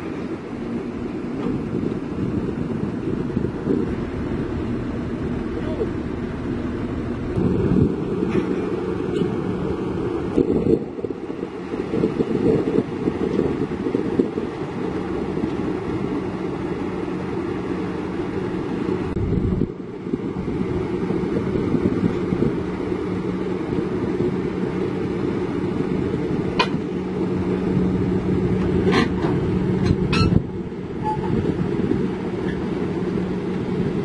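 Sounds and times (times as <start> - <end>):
excavator diesel engine running: 0.2 - 11.7.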